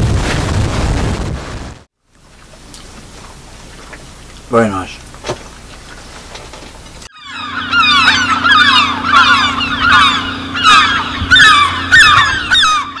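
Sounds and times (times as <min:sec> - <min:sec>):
steady low hum: 0:02.3 - 0:13.0
flock of birds calling: 0:07.1 - 0:13.0.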